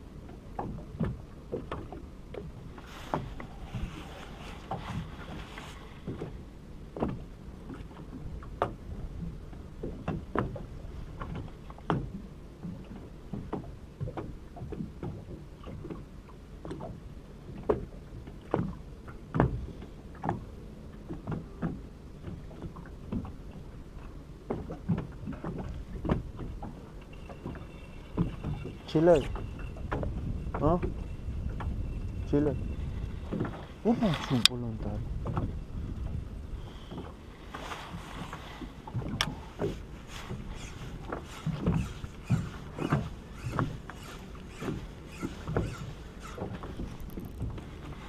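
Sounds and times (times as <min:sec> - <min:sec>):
water slapping boat hull: 0:00.0 - 0:48.0
low steady rumble: 0:16.2 - 0:48.0.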